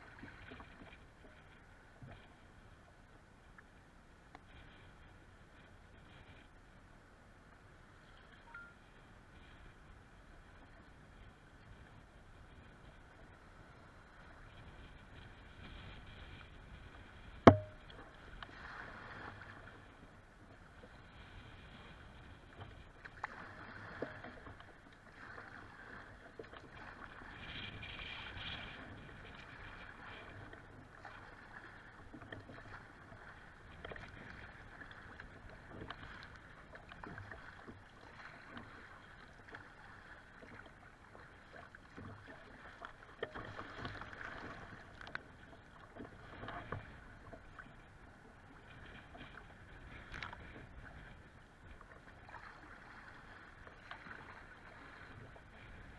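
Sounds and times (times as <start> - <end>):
sharp knock: 17.5 - 17.8
water slapping against kayak hull: 22.5 - 55.9.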